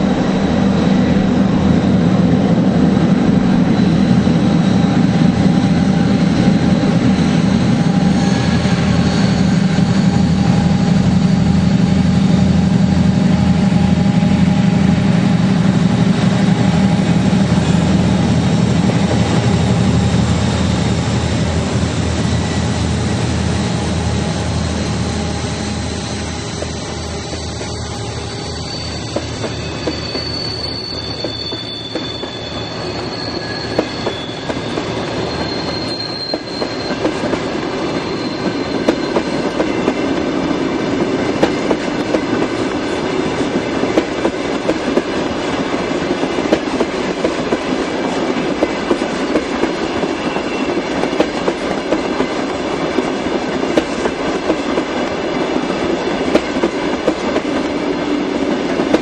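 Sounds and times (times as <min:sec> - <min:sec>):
steel wheels rumbling on rail: 0:00.0 - 0:59.0
wheel squeal: 0:03.5 - 0:14.9, 0:23.9 - 0:40.4.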